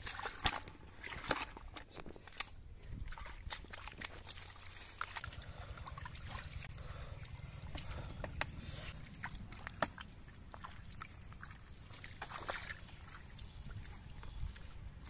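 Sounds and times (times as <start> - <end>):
hands splashing in muddy water: 0.0 - 15.0.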